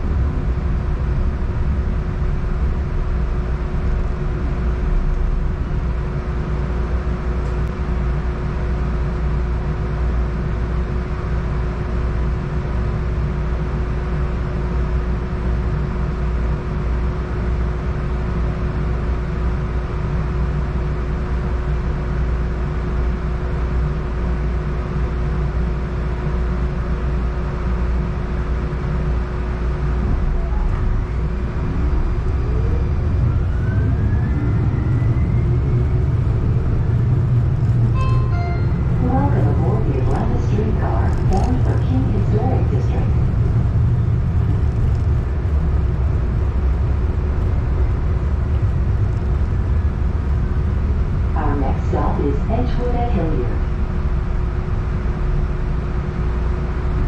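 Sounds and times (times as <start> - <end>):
streetcar low rumble: 0.0 - 57.0
electrical hum: 26.0 - 57.0.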